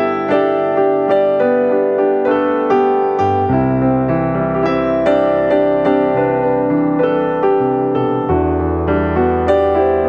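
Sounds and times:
gentle piano melody: 0:00.0 - 0:10.0.

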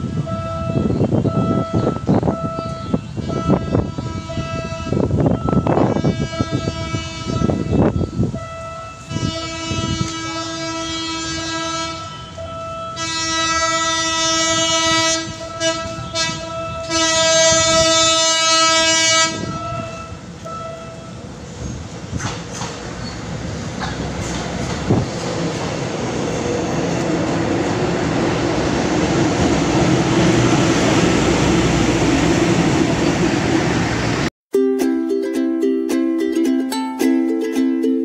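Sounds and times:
train horn blasts: 0:00.0 - 0:21.3
rail noise: 0:00.0 - 0:34.3.

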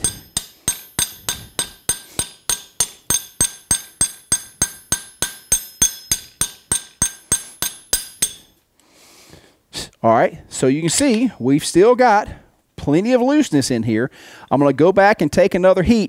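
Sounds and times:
hammer tapping rivet on anvil: 0:00.0 - 0:08.6.

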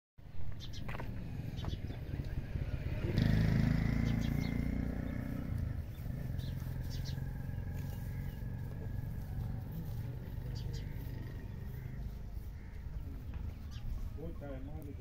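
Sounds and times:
low engine-like drone: 0:03.8 - 0:14.2.

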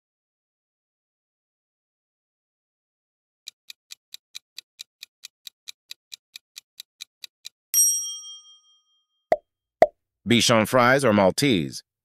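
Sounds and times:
clock ticking: 0:03.5 - 0:07.6.

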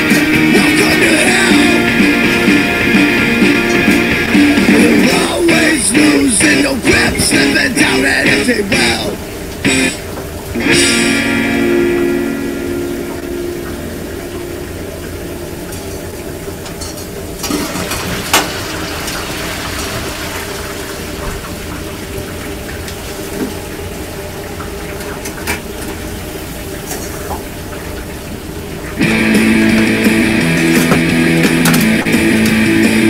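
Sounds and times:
griddle and deep fryer sizzling: 0:00.0 - 0:33.0
utensils knocking and clattering: 0:30.7 - 0:32.5.

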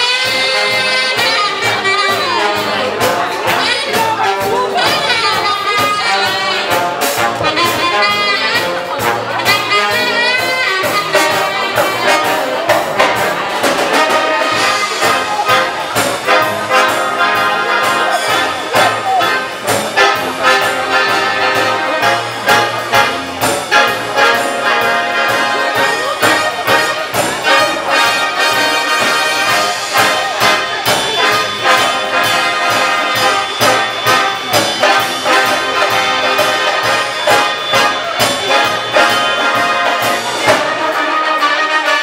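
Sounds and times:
military wind band playing: 0:00.0 - 0:42.0.

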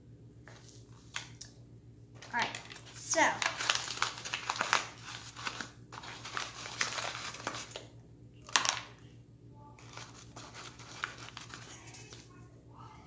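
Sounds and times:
paper bag crinkling and rustling: 0:02.2 - 0:07.8, 0:09.8 - 0:12.2.

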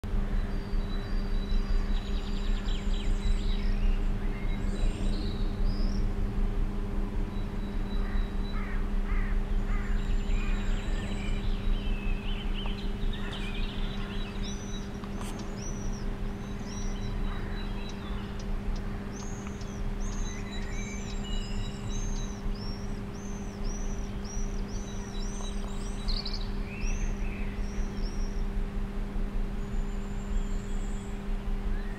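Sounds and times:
low hum and rumble: 0:00.0 - 0:31.9
swifts screaming: 0:07.3 - 0:28.6.

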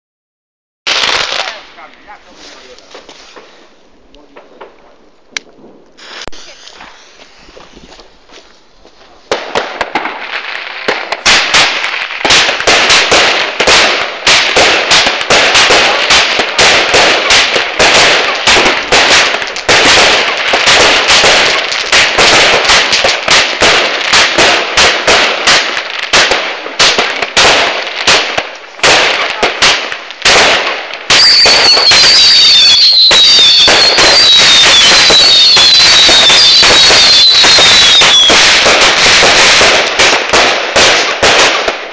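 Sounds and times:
firework crackling barrage: 0:00.9 - 0:41.9
falling firework whistles: 0:06.0 - 0:08.2, 0:31.1 - 0:39.7
firework launch bangs: 0:09.3 - 0:41.9.

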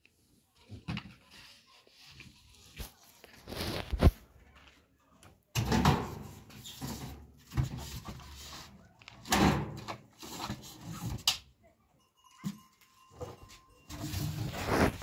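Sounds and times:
drums and buckets clattering: 0:05.6 - 0:08.1.

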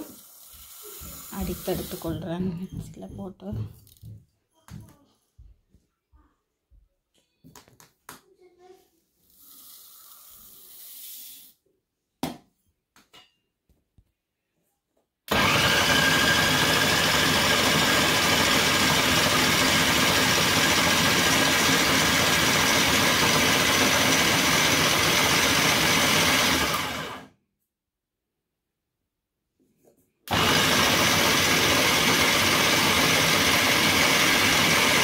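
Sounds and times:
food processor motor grinding: 0:00.0 - 0:02.2, 0:15.3 - 0:27.3, 0:30.3 - 0:35.0.

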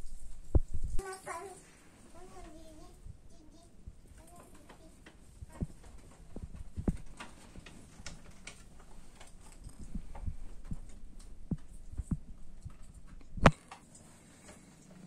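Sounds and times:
soft low thumps and knocks: 0:05.4 - 0:07.2, 0:09.7 - 0:13.5.

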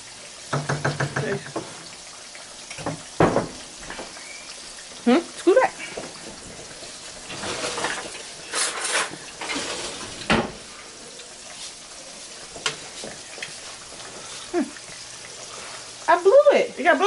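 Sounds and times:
chicken sizzling in a skillet: 0:00.0 - 0:17.0
metal knock: 0:00.5 - 0:01.6
scraping in a skillet: 0:05.8 - 0:14.6, 0:15.2 - 0:16.2.

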